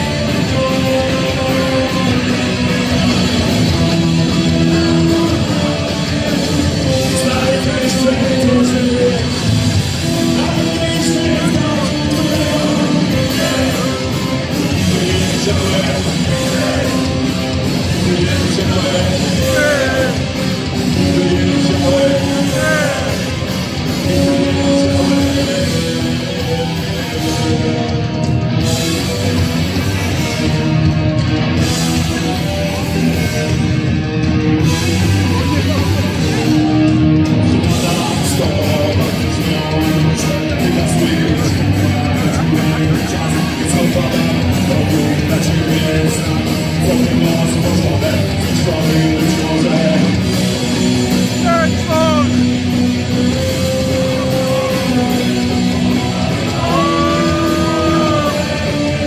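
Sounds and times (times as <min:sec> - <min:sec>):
bass guitar: 0:00.0 - 0:59.0
distorted electric guitars: 0:00.0 - 0:59.0
drums: 0:00.0 - 0:59.0
person singing: 0:04.5 - 0:27.2, 0:51.3 - 0:52.4, 0:56.4 - 0:59.0.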